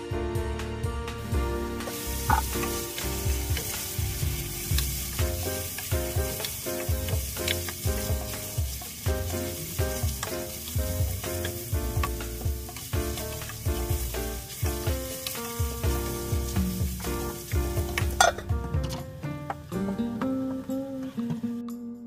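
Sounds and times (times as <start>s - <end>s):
background music: 0.0s - 22.0s
vegetables sizzling in hot oil: 1.2s - 19.0s
spatula knocking in pot: 2.3s - 2.7s.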